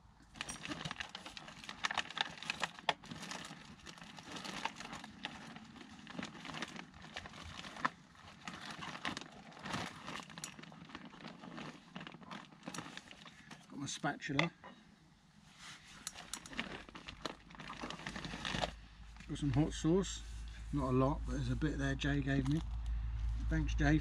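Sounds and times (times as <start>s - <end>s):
plastic bags rustling: 0.3s - 13.8s, 15.7s - 20.7s.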